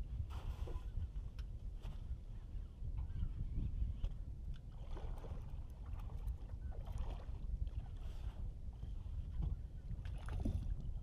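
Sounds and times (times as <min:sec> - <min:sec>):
wind buffeting microphone: 0:00.0 - 0:11.0
water lapping against boat: 0:03.8 - 0:11.0.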